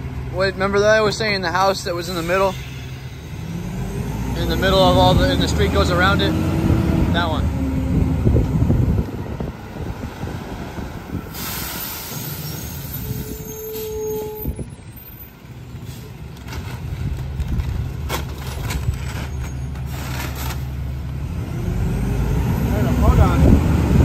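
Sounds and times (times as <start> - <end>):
diesel engine humming: 0.0 - 24.0
air brakes hissing: 2.0 - 3.6, 11.2 - 14.6.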